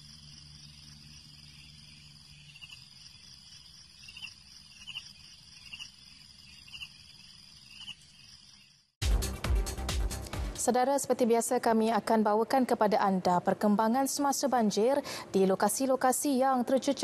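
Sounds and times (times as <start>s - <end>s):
insects trilling: 0.0s - 9.0s.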